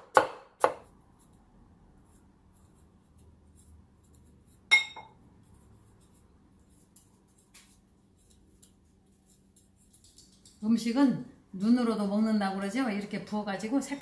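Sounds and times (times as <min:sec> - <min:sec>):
knife chopping on wooden board: 0:00.0 - 0:00.9
sharp ringing clink: 0:04.7 - 0:05.1.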